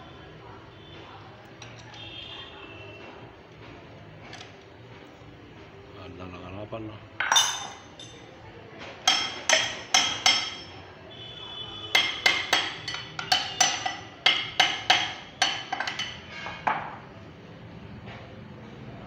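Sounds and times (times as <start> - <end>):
metal tool clinking on engine: 7.2 - 8.3, 12.0 - 16.6.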